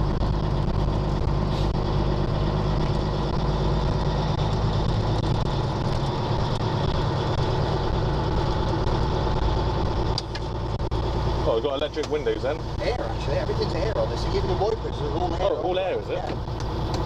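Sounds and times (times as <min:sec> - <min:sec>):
truck diesel engine drone: 0:00.0 - 0:17.0.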